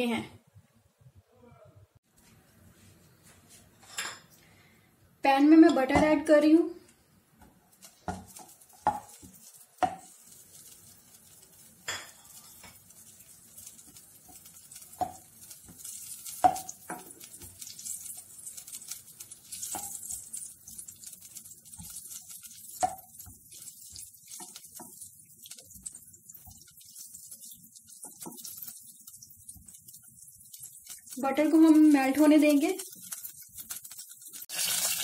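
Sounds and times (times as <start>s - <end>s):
butter sizzling in saucepan: 7.3s - 35.0s.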